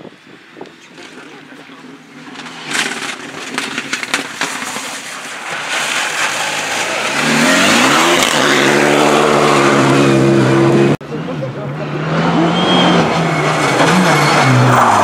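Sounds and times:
exhaust pops: 2.2 - 6.4
rally car engine accelerating: 2.5 - 15.0.

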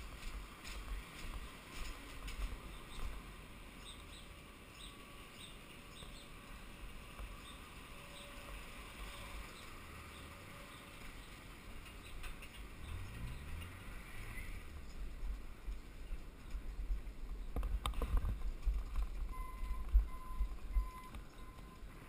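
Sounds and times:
bike rolling over cobblestones: 0.0 - 21.9
light regular ticks: 11.0 - 21.9.

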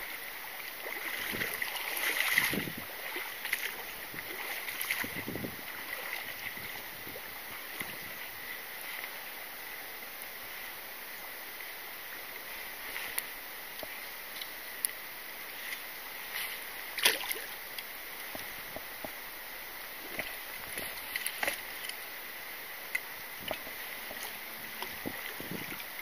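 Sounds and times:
flowing water hiss: 0.0 - 26.0
fish splashing in water: 0.7 - 8.1, 16.9 - 17.7.

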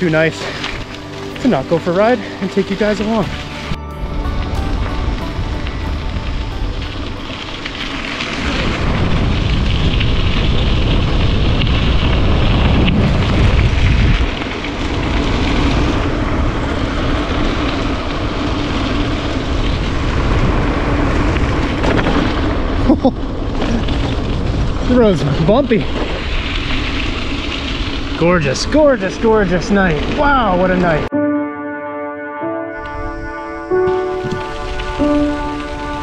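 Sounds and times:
bike tyres rolling on dirt: 0.0 - 31.1, 33.8 - 36.0
wind buffeting microphone: 4.0 - 31.1.

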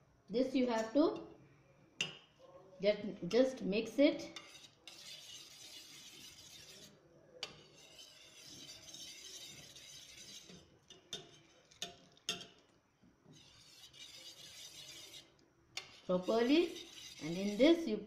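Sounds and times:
whisk clinking against metal bowl: 4.3 - 12.6, 13.4 - 17.7
whisk swishing in a bowl: 4.4 - 11.9, 13.3 - 17.8.

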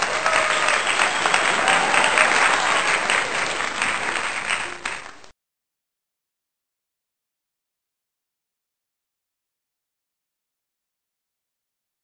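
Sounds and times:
crowd clapping: 0.0 - 5.3.

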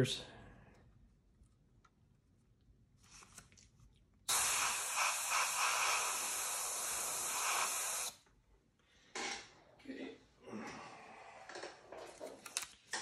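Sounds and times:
airbrush spraying hiss: 4.3 - 8.2.

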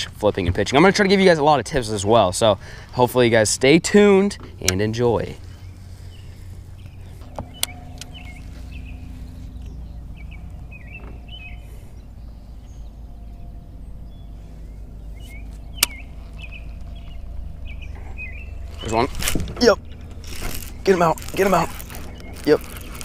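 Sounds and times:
small birds chirping: 0.0 - 23.0
steady low rumble: 0.0 - 23.0
sharp clicks: 15.4 - 17.1.

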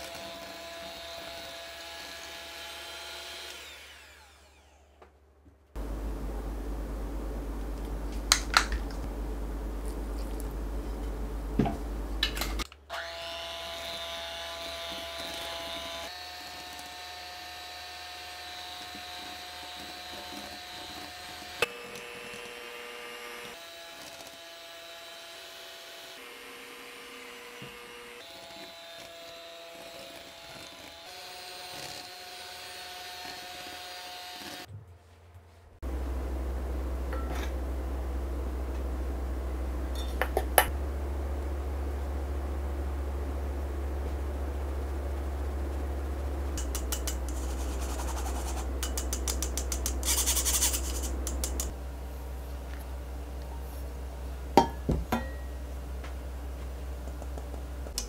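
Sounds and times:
electric hand mixer whining: 0.0 - 5.0.

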